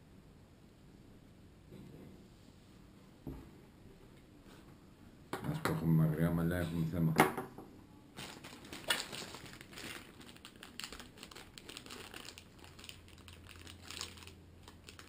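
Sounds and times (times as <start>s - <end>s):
plastic bag crinkling: 8.2s - 15.0s.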